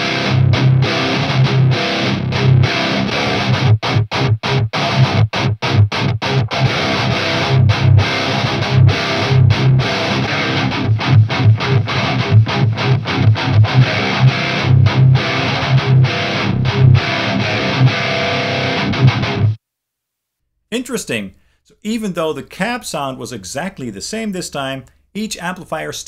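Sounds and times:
distorted electric guitar riff: 0:00.0 - 0:19.6.

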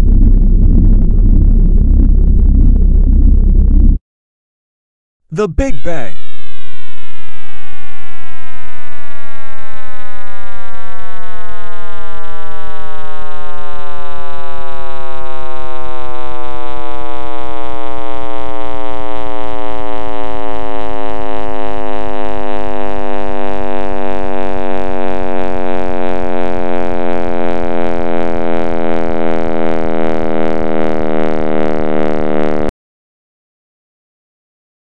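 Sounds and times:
low rumble: 0:00.0 - 0:04.0.

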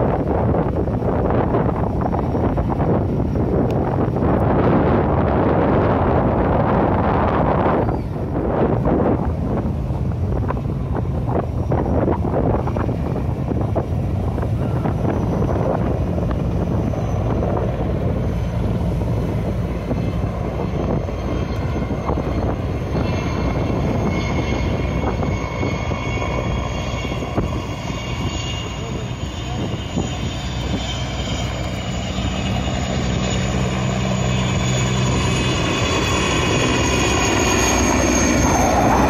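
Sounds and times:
helicopter rotor drone: 0:00.0 - 0:39.0
high turbine whine: 0:00.0 - 0:39.0.

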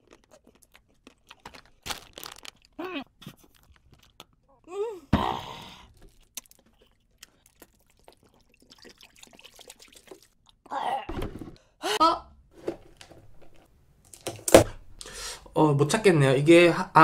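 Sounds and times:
person moaning: 0:04.6 - 0:05.9
water pouring and spilling: 0:07.3 - 0:10.4.

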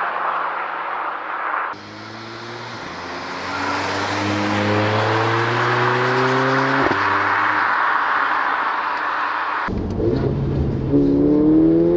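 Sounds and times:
rush of car noise: 0:00.0 - 0:11.9
car engine accelerating: 0:01.8 - 0:11.9.

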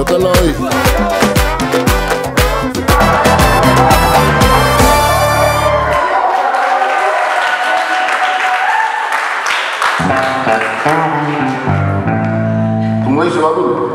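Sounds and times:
dance music: 0:00.0 - 0:06.5
people clapping: 0:00.0 - 0:12.4
people cheering: 0:00.5 - 0:11.9.

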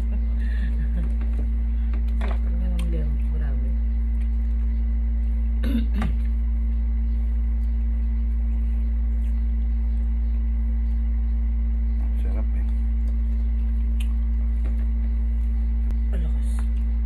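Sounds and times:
low hum: 0:00.0 - 0:17.0
person coughing: 0:05.6 - 0:06.3.

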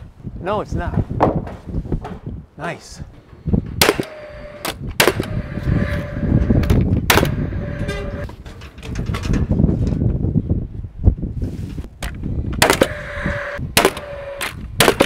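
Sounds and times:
wind rumble on microphone: 0:00.0 - 0:15.0
nail gun fan whirring: 0:03.2 - 0:09.4, 0:12.0 - 0:15.0
nail gun firing cracks: 0:03.8 - 0:05.5, 0:06.6 - 0:07.4, 0:12.6 - 0:15.0.

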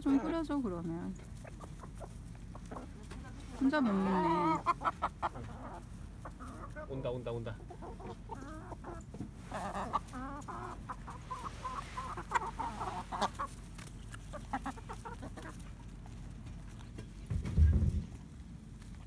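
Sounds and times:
hens clucking: 0:00.0 - 0:19.0
low thump: 0:17.3 - 0:18.2.

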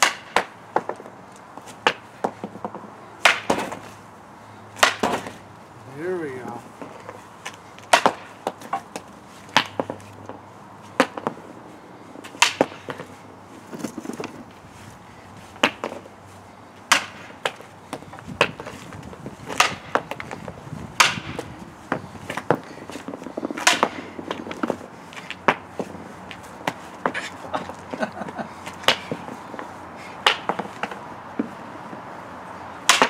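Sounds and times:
hockey stick shooting pucks: 0:00.0 - 0:01.1, 0:01.8 - 0:03.9, 0:04.8 - 0:05.4, 0:07.8 - 0:10.1, 0:10.9 - 0:11.4, 0:12.2 - 0:14.4, 0:15.6 - 0:16.1, 0:16.9 - 0:31.5.

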